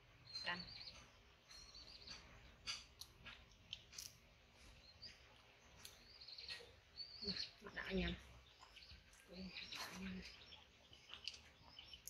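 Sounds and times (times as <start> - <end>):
monkeys chewing wet clicks: 1.6 - 7.2, 8.2 - 12.0.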